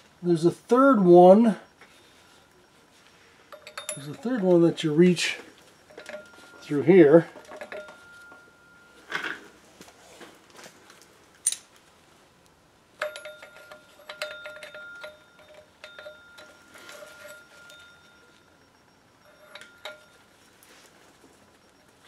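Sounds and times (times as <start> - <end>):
metal tools clinking: 3.4 - 9.6, 13.0 - 22.0.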